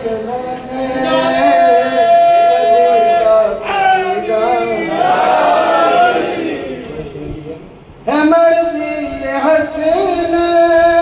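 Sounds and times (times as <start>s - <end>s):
man singing into a microphone: 0.0s - 4.8s, 8.0s - 11.0s.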